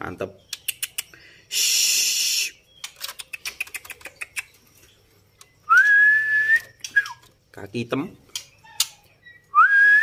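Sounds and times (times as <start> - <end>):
bird sharp ticking calls: 0.1 - 1.4, 2.5 - 5.8.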